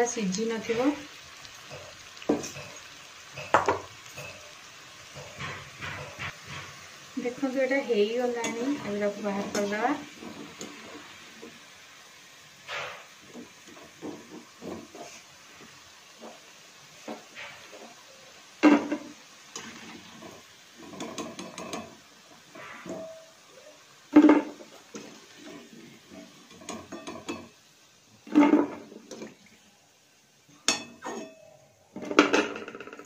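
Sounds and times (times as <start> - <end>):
metal ladle clanking on pan: 1.7 - 4.5, 5.1 - 6.7, 18.6 - 21.9, 26.5 - 27.5.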